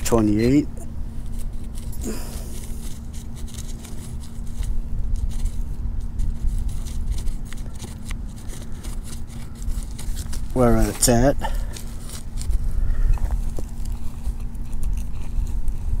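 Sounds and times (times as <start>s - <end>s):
digging scrapes and clicks: 0.0s - 16.0s
metal detector hum: 0.0s - 16.0s
wind rumble on microphone: 2.6s - 7.9s, 12.1s - 16.0s.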